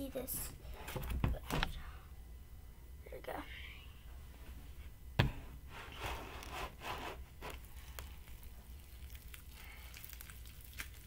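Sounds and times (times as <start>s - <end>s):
plastic tub thump: 5.2s - 5.5s.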